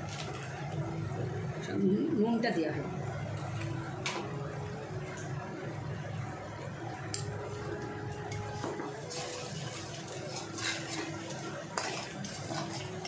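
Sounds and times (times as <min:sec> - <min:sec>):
sizzling oil: 0:00.0 - 0:01.6, 0:06.5 - 0:13.0
metal spatula scraping pan: 0:09.0 - 0:13.0
spatula clinking: 0:09.0 - 0:13.0.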